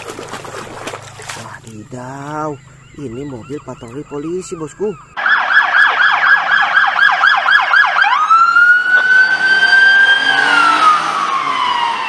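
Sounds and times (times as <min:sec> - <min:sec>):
police siren: 0:02.8 - 0:12.0.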